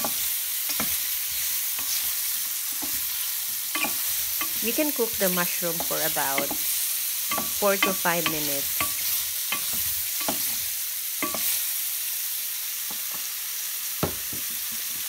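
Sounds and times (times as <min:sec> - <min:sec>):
spatula scraping a pan: 0:00.0 - 0:05.2, 0:05.8 - 0:11.6
mushrooms sizzling in a frying pan: 0:00.0 - 0:15.0.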